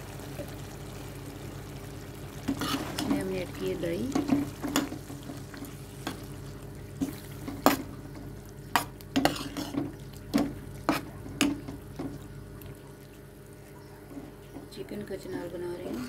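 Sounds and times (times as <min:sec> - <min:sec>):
spoon scraping metal pan: 0:02.5 - 0:03.2, 0:08.8 - 0:09.8.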